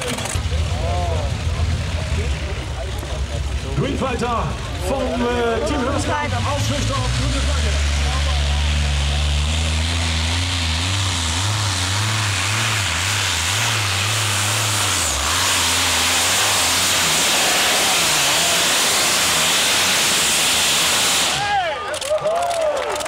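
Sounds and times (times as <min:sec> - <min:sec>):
pulling tractor engines under load: 0:00.0 - 0:00.7, 0:06.0 - 0:23.0.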